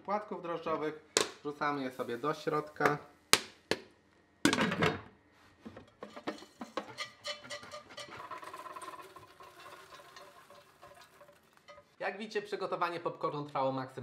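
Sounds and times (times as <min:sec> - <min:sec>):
pot rattling: 0:05.8 - 0:12.0
popcorn pattering into metal bowl: 0:06.0 - 0:12.0.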